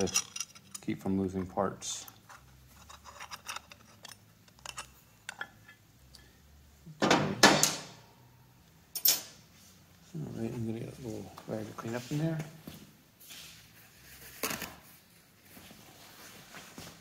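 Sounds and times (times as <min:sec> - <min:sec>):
metal parts clattering: 0:00.0 - 0:00.9, 0:02.3 - 0:05.4.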